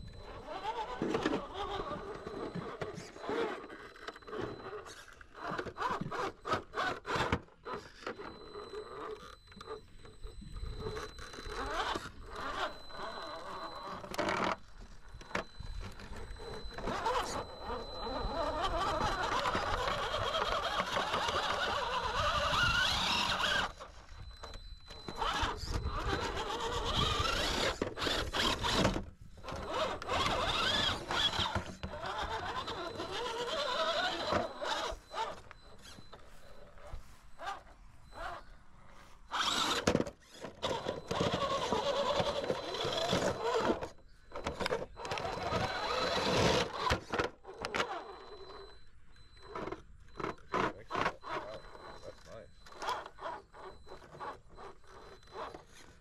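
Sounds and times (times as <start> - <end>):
electric motor and gears whining: 0.0 - 56.0.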